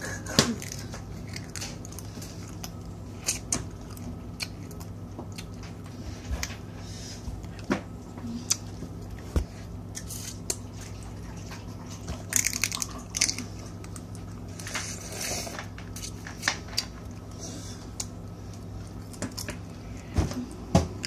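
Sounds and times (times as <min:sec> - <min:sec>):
steady low hum: 0:00.0 - 0:21.0
wet mouth eating noises: 0:00.1 - 0:06.0, 0:08.2 - 0:16.2.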